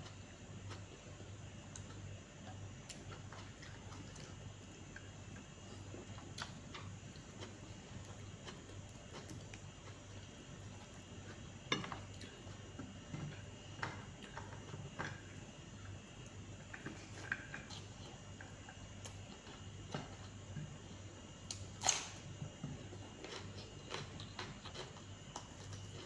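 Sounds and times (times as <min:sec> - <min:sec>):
faint low hum: 0:00.0 - 0:26.0
chewing: 0:02.9 - 0:15.2, 0:22.8 - 0:26.0.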